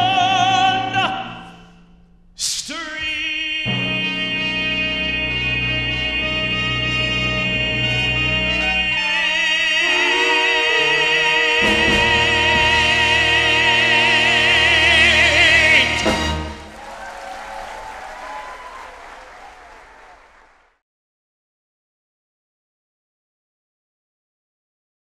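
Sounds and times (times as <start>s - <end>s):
man singing with vibrato: 0.0s - 16.7s
orchestra playing: 3.7s - 17.2s
audience applause: 15.5s - 20.8s.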